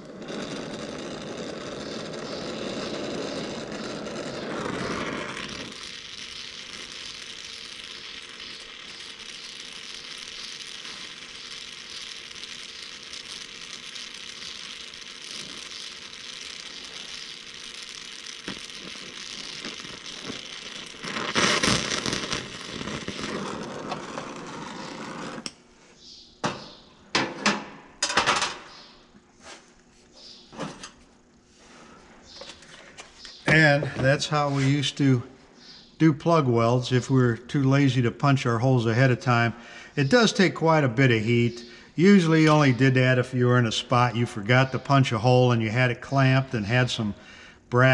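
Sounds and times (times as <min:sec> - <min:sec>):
torch flame hissing: 0:00.0 - 0:25.6, 0:37.8 - 0:47.8.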